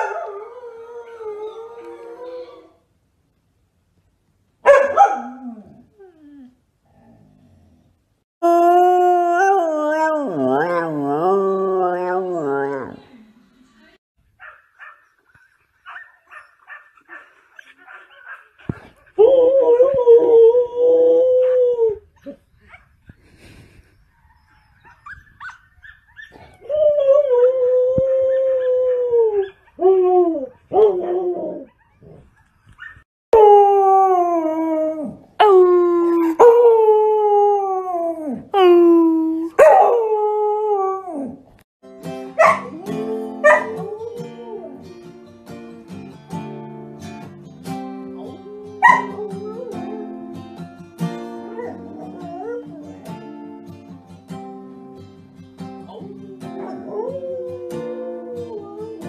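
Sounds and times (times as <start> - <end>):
dog yipping: 14.4 - 15.1, 48.8 - 49.1
acoustic guitar strumming: 41.9 - 48.2, 49.0 - 52.2, 52.9 - 56.9.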